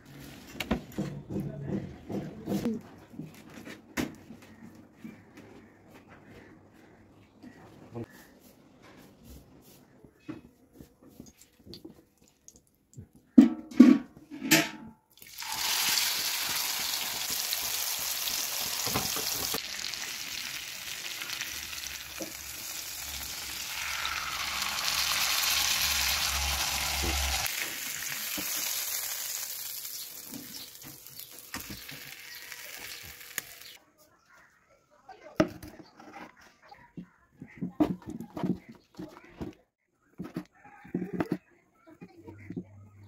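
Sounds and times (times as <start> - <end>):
chicken sizzling on griddle: 15.2 - 33.8.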